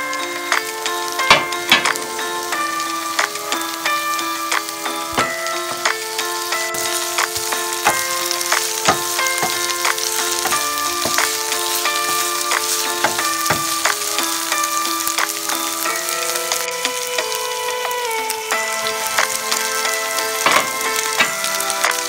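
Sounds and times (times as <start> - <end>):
background music: 0.0 - 22.0
vegetables sizzling in a frying pan: 0.0 - 22.0
wooden spatula stirring: 6.7 - 14.4.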